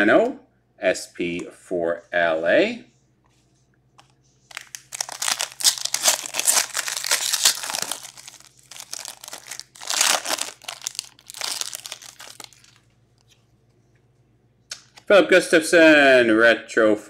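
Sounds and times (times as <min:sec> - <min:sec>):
foil wrapper crinkling: 0:04.5 - 0:12.9.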